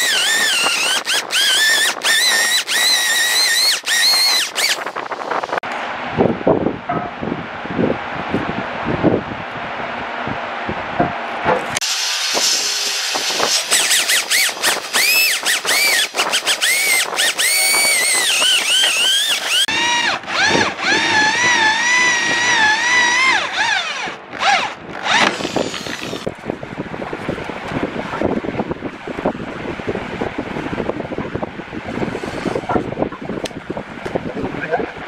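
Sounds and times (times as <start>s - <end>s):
electric drill boring into wood: 0.0s - 5.6s, 11.8s - 26.3s, 32.1s - 32.7s.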